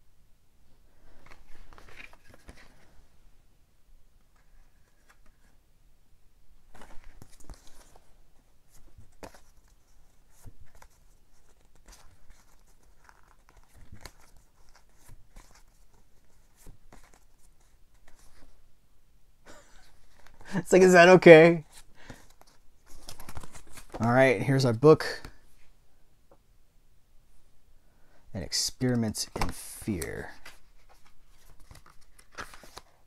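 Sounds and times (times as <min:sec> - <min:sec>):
cards and plastic packaging rustling: 0:01.1 - 0:03.0, 0:06.7 - 0:18.6, 0:19.7 - 0:25.4, 0:28.5 - 0:33.0.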